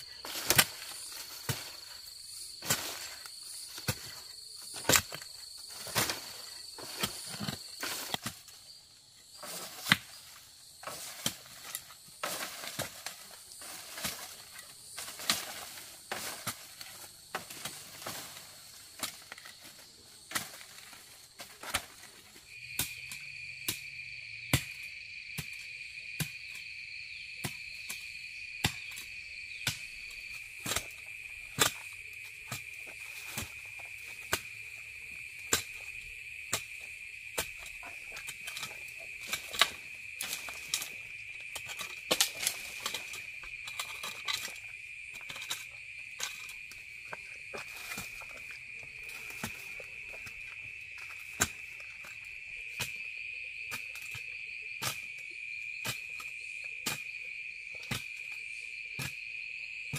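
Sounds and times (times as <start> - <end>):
scraping of loose soil: 0.0 - 22.6, 29.6 - 55.1
forest insects droning: 0.0 - 59.9
hoe striking earth: 0.2 - 8.6, 9.4 - 19.6, 29.6 - 53.0.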